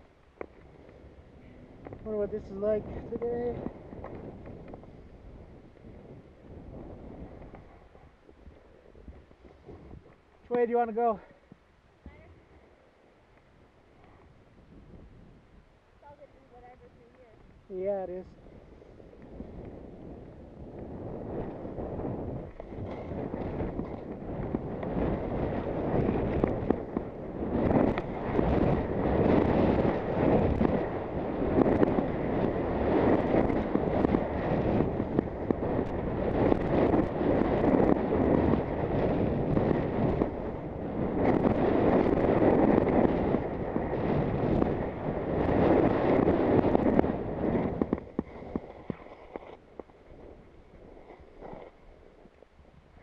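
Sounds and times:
wind rushing over microphone: 0.0s - 53.0s
skis scraping over snow: 0.4s - 11.2s, 16.4s - 53.0s.

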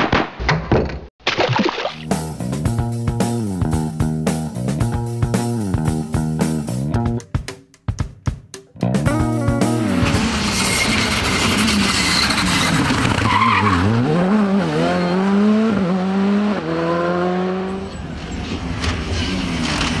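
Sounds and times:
rally car engine revving: 9.0s - 20.0s.

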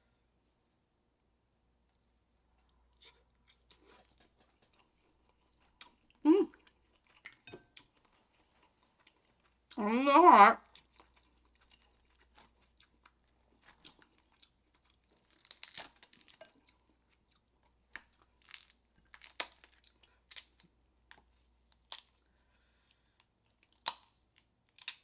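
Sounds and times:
chewing and crunching: 1.9s - 9.8s, 10.6s - 22.2s
crab shells cracking: 15.1s - 16.5s, 18.0s - 20.6s.

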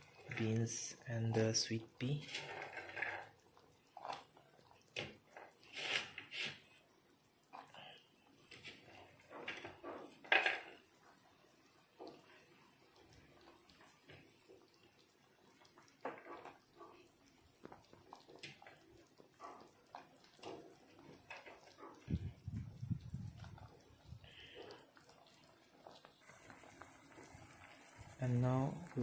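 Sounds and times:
stew bubbling in a pot: 0.0s - 29.0s.

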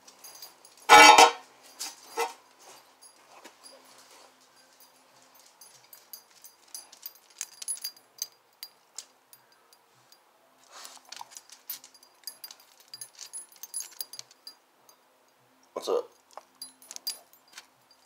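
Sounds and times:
short rustle: 10.0s - 14.6s.

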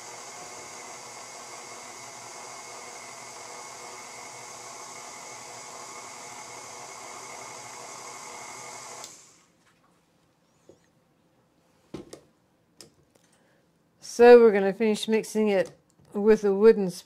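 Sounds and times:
stand mixer motor whining: 0.0s - 9.5s.

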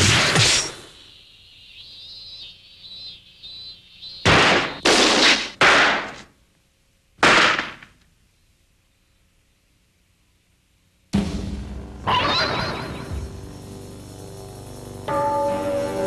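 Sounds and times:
cartoon gunshots: 0.0s - 0.9s, 4.2s - 6.3s, 7.2s - 7.9s.

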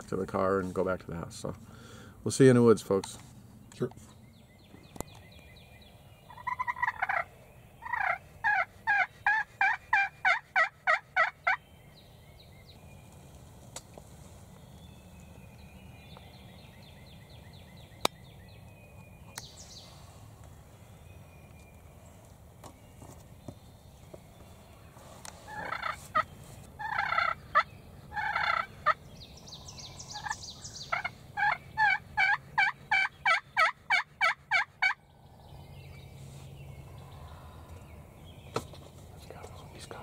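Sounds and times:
distant bird calls: 0.0s - 40.0s
turkey yelping: 6.3s - 11.6s, 25.5s - 26.2s, 26.8s - 29.0s, 30.1s - 35.0s.

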